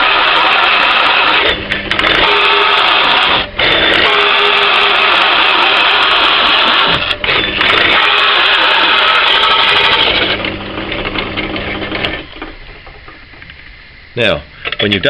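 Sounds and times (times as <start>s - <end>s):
hole saw cutting wood: 0.0s - 10.4s
drill motor humming: 0.0s - 12.8s.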